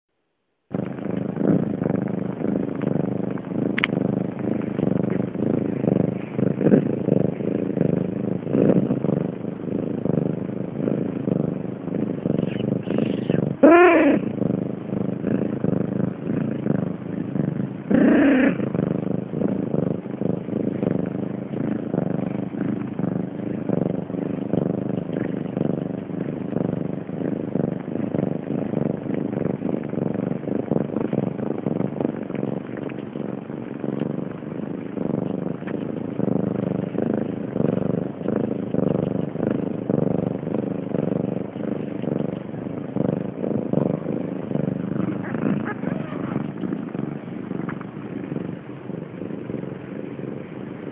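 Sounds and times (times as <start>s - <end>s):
kittens purring: 0.6s - 50.9s
kitten mewing: 12.4s - 14.5s, 17.9s - 18.8s, 44.9s - 46.6s.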